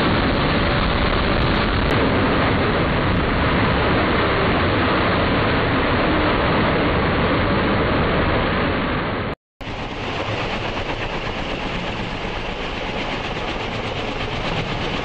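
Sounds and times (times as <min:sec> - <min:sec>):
loud jet engine noise: 0:00.0 - 0:15.0
tiltrotor engine noise: 0:09.6 - 0:15.0.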